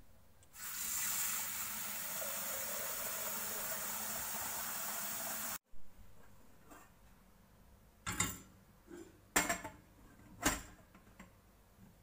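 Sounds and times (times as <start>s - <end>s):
tap water running into metal pot: 0.6s - 5.6s.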